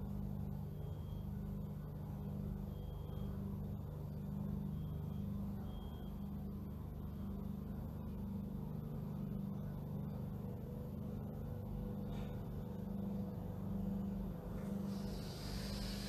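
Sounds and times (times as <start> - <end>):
low background hum: 0.0 - 16.0
person breathing out: 14.9 - 16.0.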